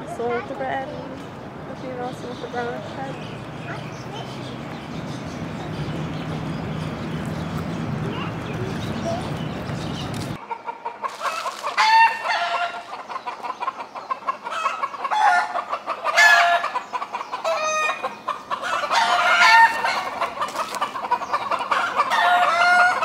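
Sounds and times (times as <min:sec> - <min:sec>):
chickens clucking: 0:00.0 - 0:23.0
rooster crowing: 0:11.8 - 0:12.8, 0:18.6 - 0:20.2, 0:21.8 - 0:23.0.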